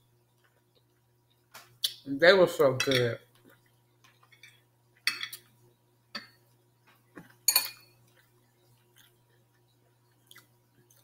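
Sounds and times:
fork clinking on glass plate: 7.5 - 8.0.

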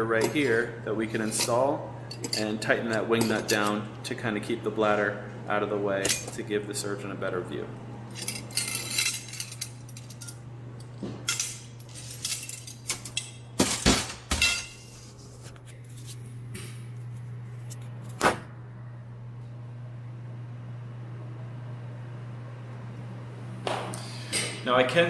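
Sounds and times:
steady low hum: 0.0 - 25.0
metal instruments clinking: 1.2 - 3.8, 8.1 - 14.9.

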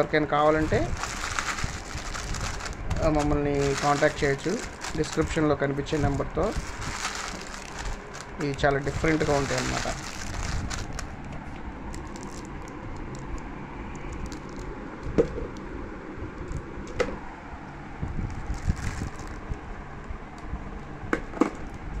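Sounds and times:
low background noise: 0.0 - 22.0
candy wrappers clicking and crinkling: 0.5 - 11.3, 11.9 - 13.4, 14.0 - 14.7, 18.3 - 19.5.

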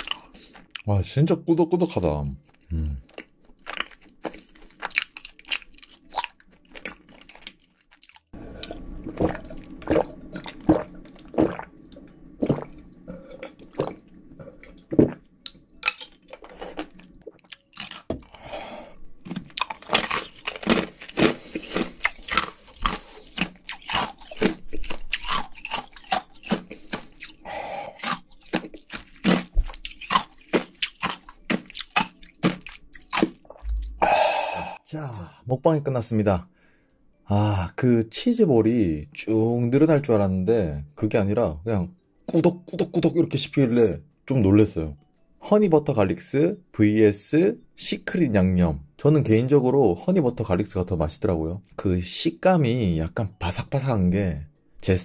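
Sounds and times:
crunchy chewing: 0.0 - 0.9, 2.4 - 11.6, 15.5 - 18.5, 19.2 - 34.0.

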